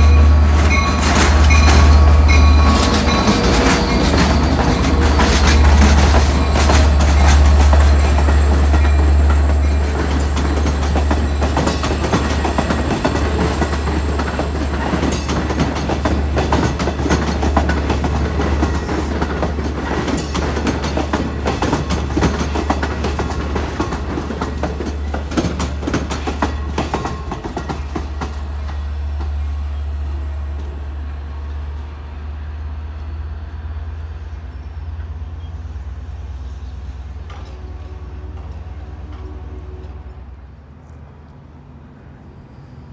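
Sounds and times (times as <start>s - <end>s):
train wheels clattering over rail joints: 0.0s - 29.5s
diesel locomotive engine rumble: 0.0s - 42.9s.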